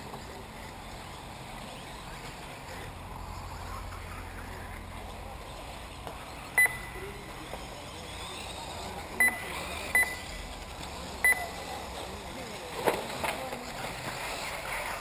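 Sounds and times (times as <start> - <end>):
steady background hum: 0.0 - 15.0
short high electronic beeps: 6.6 - 7.0, 9.2 - 10.3, 11.2 - 11.6.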